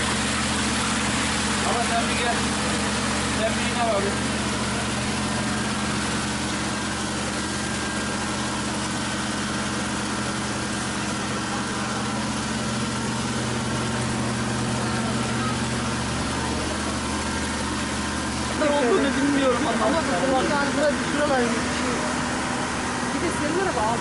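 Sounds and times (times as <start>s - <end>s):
engine idling: 0.0s - 24.0s.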